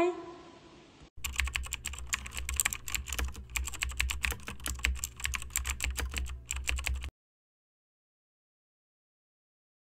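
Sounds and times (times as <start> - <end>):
keyboard typing clicks: 1.2 - 7.1.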